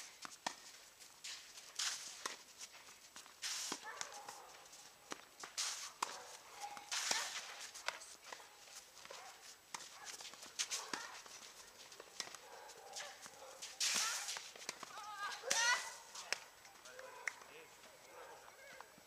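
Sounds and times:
shoes scuffing the court: 0:00.0 - 0:19.0
tennis balls bouncing on court: 0:00.1 - 0:00.8, 0:05.0 - 0:12.5, 0:13.2 - 0:17.6
tennis balls struck by rackets: 0:00.2 - 0:04.4, 0:05.0 - 0:08.5, 0:09.6 - 0:12.4, 0:13.2 - 0:17.5.

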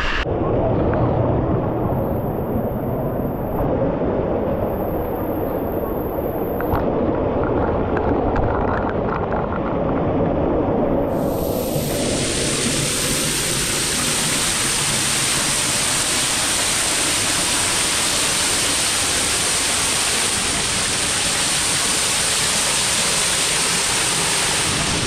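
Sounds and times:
waterfall rushing: 0:11.1 - 0:25.0.

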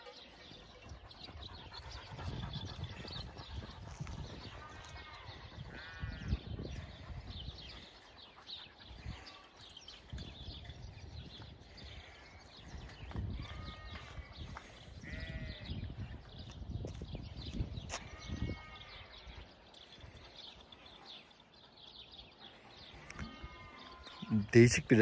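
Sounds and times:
sheep bleating: 0:04.6 - 0:06.4, 0:13.4 - 0:15.7, 0:23.0 - 0:24.5.

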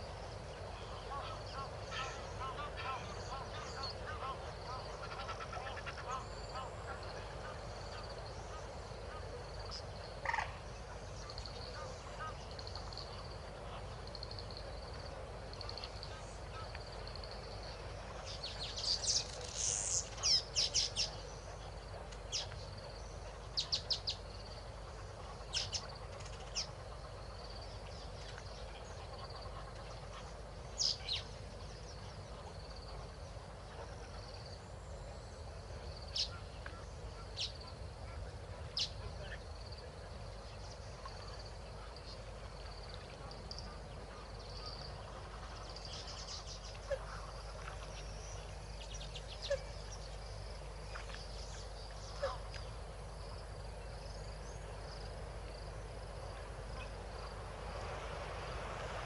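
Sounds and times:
wild birds calling: 0:00.0 - 0:14.6, 0:15.6 - 0:39.5
faint steady high hum: 0:00.0 - 0:59.0.

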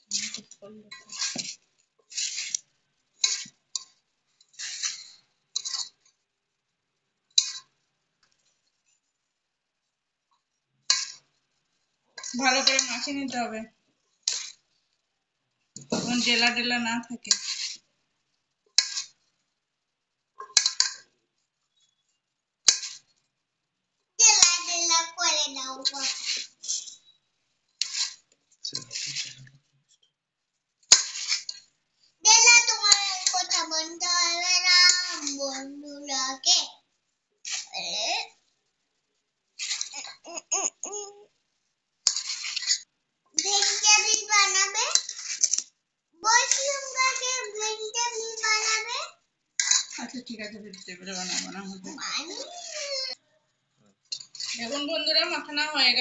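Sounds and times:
hands scraping metal pot: 0:00.1 - 0:02.6, 0:03.2 - 0:03.6, 0:04.5 - 0:06.0, 0:12.2 - 0:13.2, 0:17.3 - 0:17.8, 0:18.8 - 0:19.1, 0:25.8 - 0:27.1, 0:27.8 - 0:29.4, 0:30.9 - 0:31.6, 0:39.6 - 0:40.8, 0:42.0 - 0:45.6, 0:49.6 - 0:50.2, 0:54.1 - 0:54.7
hands rubbing flour in bowl: 0:00.1 - 0:03.6, 0:17.3 - 0:17.8, 0:25.8 - 0:27.0, 0:27.8 - 0:29.5, 0:30.9 - 0:31.6.

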